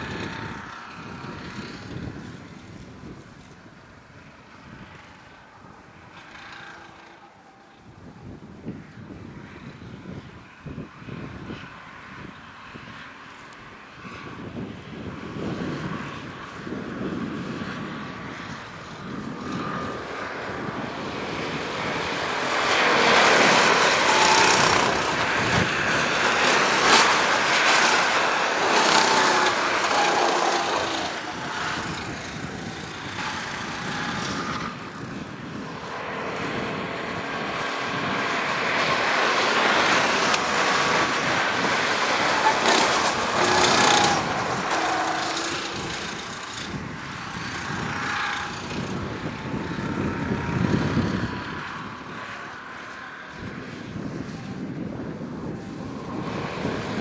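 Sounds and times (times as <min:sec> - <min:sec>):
go-kart engines racing: 0:00.0 - 0:57.0.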